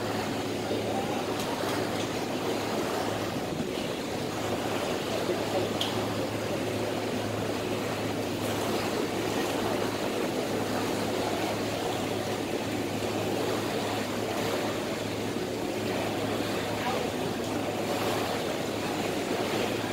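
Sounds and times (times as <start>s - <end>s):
ferry engine hum: 0.0s - 19.9s
rushing water and air: 0.0s - 19.9s.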